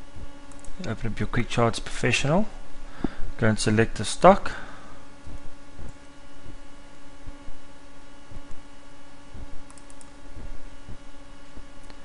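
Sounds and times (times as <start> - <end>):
steady electrical hum: 0.0 - 12.0
keyboard and mouse clicks: 0.5 - 0.9, 9.7 - 10.2.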